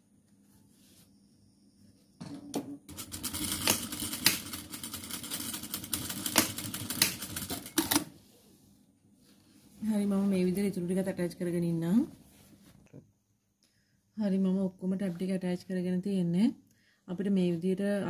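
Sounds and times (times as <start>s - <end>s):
sewing machine stitching: 2.9s - 8.1s.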